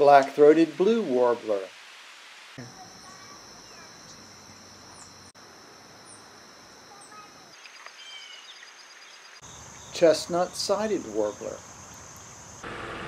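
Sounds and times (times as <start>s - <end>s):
rapid pulsing insect chirp: 1.6s - 13.0s
high-pitched insect drone: 2.6s - 13.0s
short bird chirps: 7.0s - 10.0s.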